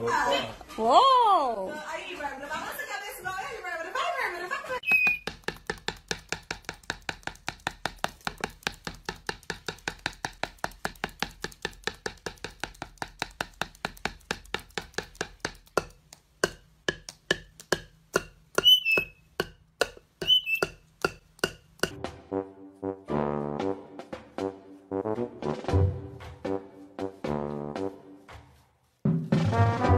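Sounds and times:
short high squeaks: 4.8s - 5.2s, 18.6s - 19.2s, 20.2s - 20.7s
tapping on wooden bowl: 4.9s - 22.0s.

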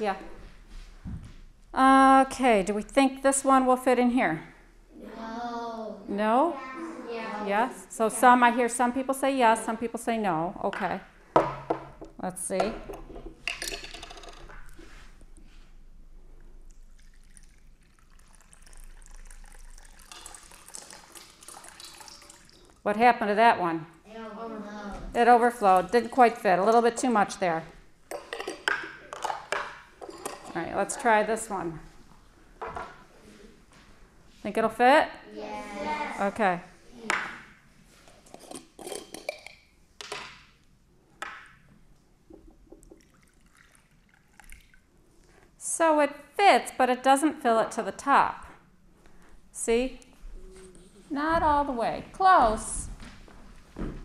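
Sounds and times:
cups clinking on a tabletop: 10.8s - 14.7s, 28.1s - 30.6s, 38.3s - 40.4s
water trickling into a cup: 16.7s - 22.8s, 42.8s - 44.9s.

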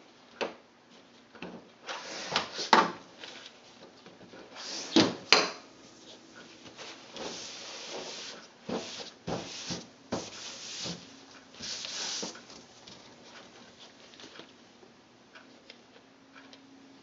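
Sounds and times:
brush swishing strokes: 6.8s - 12.6s.

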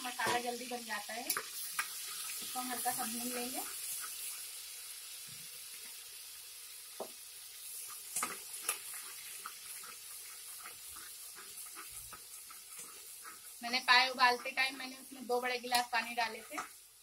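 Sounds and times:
spices sizzling in hot oil: 0.0s - 17.0s
metal spoon scraping pot: 8.9s - 16.7s.

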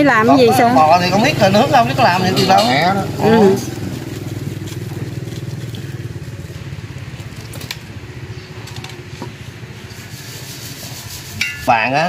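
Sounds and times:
small engine idling: 0.0s - 10.6s.

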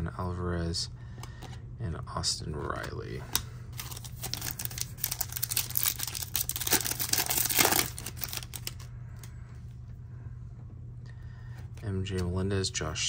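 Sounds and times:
plastic wrapper tearing and crinkling: 3.8s - 8.9s.

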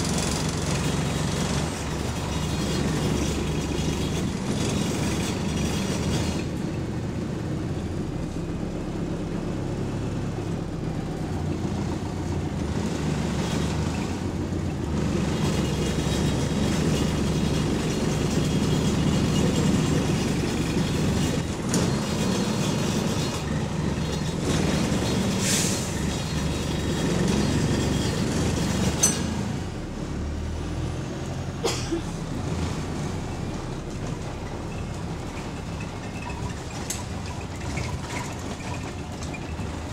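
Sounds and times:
bus engine running: 0.0s - 39.9s
rattling interior parts: 31.6s - 39.9s.

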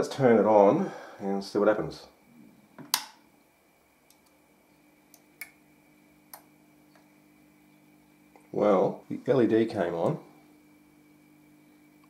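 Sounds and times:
faint mains hum: 0.0s - 12.0s
small relay clicking: 4.0s - 4.4s, 5.1s - 5.6s, 6.3s - 7.1s.

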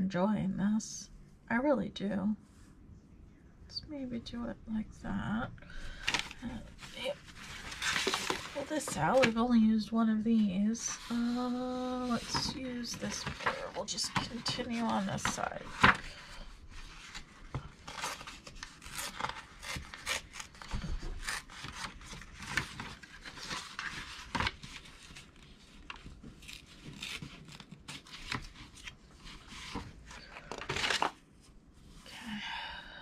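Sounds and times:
paper rustling and crinkling: 5.9s - 9.5s, 10.8s - 31.6s
paper tearing: 17.9s - 24.5s.

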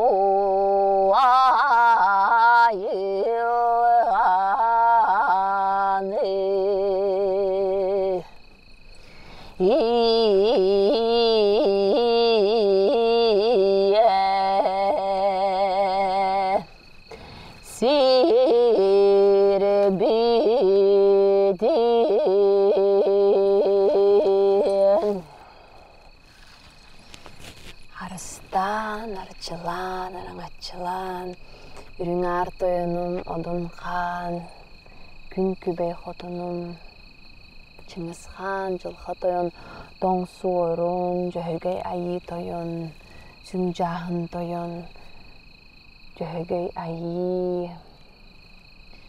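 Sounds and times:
woman singing with yodel flips: 0.0s - 8.4s, 9.5s - 16.8s, 17.5s - 26.0s, 27.9s - 31.4s, 32.0s - 34.6s, 35.3s - 36.9s, 37.8s - 45.1s, 46.1s - 47.9s.

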